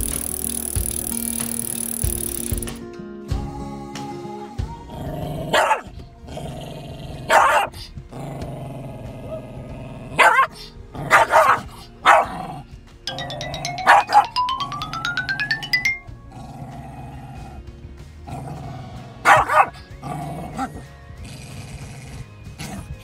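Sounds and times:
small dog barking: 5.5 - 5.9, 7.3 - 7.8, 10.2 - 12.4, 19.2 - 19.8.

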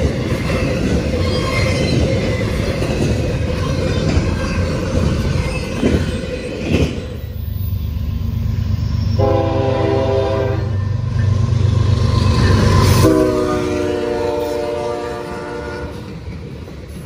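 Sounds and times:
diesel locomotive engine rumble: 0.0 - 17.0
freight train rolling past: 0.0 - 17.0
train air horn blast: 9.2 - 10.8, 13.0 - 16.1.

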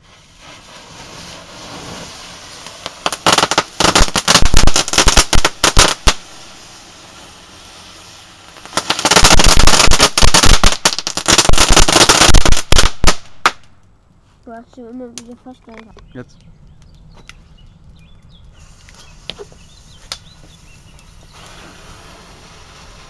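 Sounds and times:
fireworks hissing: 0.0 - 13.6, 18.5 - 23.0
fireworks crackling pops: 0.0 - 23.0.

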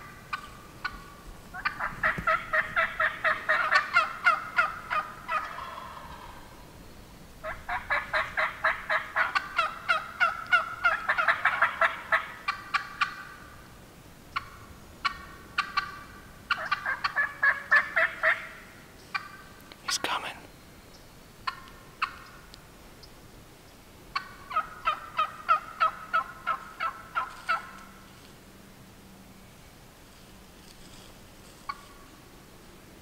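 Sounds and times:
turkey yelping: 0.3 - 6.5, 7.4 - 13.4, 14.4 - 19.5, 21.4 - 22.3, 24.1 - 27.9.

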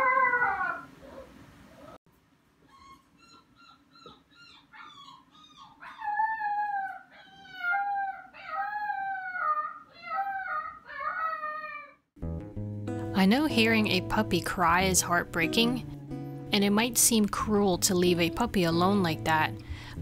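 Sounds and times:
puppy crying: 0.0 - 2.0, 2.6 - 12.1.

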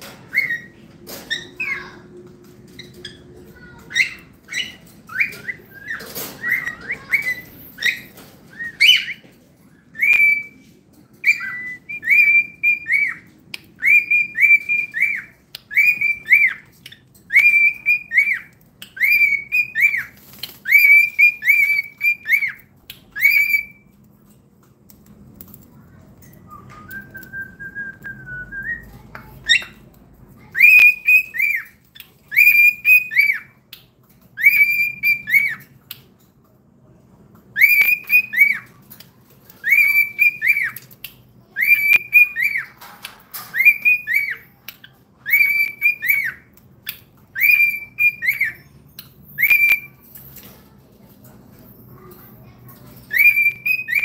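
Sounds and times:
cockatiel whistling: 0.3 - 1.9, 3.9 - 9.2, 9.9 - 10.6, 11.2 - 13.2, 13.8 - 16.7, 17.3 - 22.6, 23.2 - 23.8, 30.4 - 33.5, 34.4 - 35.7, 37.5 - 38.7, 39.6 - 40.8, 41.5 - 42.8, 43.4 - 44.5, 45.2 - 48.7, 49.3 - 50.0, 53.1 - 54.0.

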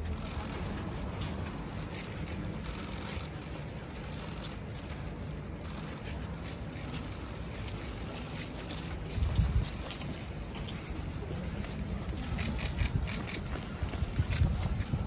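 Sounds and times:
faint street ambience: 0.0 - 15.0
wind buffeting microphone: 9.0 - 10.2, 11.8 - 15.0.

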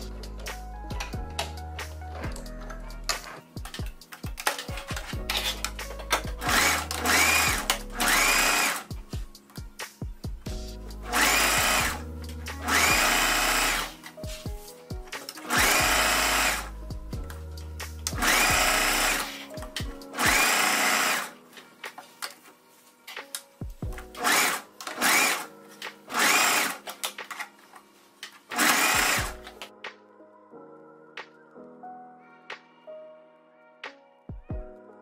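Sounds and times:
sewing machine stitching: 6.4 - 8.8, 11.1 - 12.0, 12.6 - 13.9, 15.4 - 16.7, 18.1 - 19.3, 20.2 - 21.3, 24.2 - 25.5, 26.1 - 26.8, 28.5 - 29.4.

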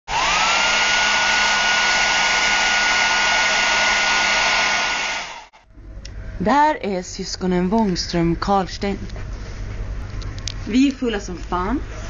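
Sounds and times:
electric blower motor whine: 0.1 - 5.5.

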